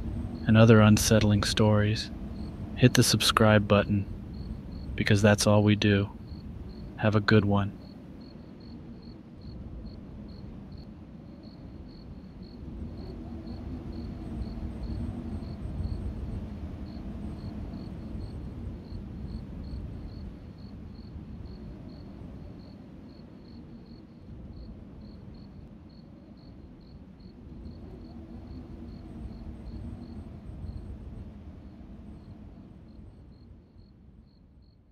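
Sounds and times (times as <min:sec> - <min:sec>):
low rumbling hush: 0:00.0 - 0:07.8
cricket chirping: 0:00.0 - 0:34.9.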